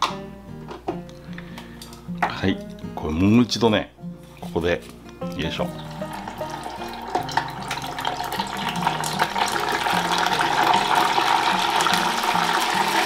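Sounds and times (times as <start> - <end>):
food sizzling in hot oil: 5.7 - 13.0.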